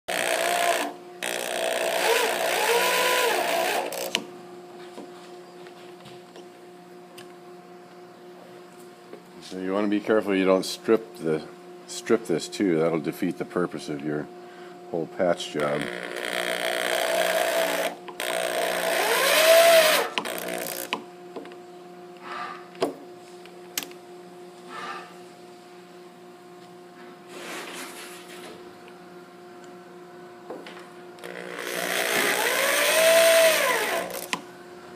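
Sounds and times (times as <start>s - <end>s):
electric drill driving screw into wood: 0.1s - 4.2s, 15.8s - 21.0s, 31.2s - 34.4s
drill click: 31.2s - 34.4s.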